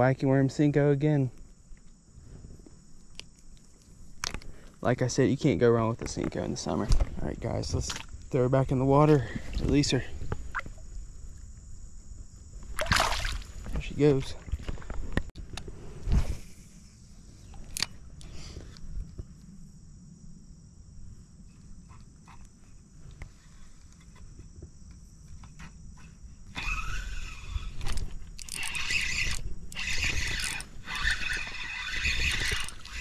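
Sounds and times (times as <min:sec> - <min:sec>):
fishing reel whirring: 0:26.4 - 0:33.0.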